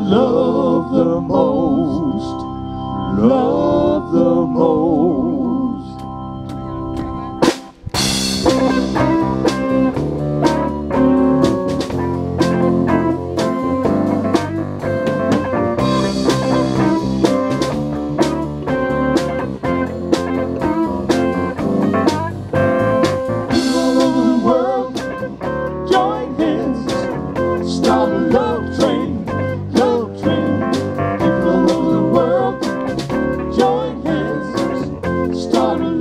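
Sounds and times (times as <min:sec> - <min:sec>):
electric guitar lead bends: 0:00.0 - 0:36.0
live band playing instrumental: 0:06.0 - 0:36.0
cymbal crash: 0:07.5 - 0:09.4.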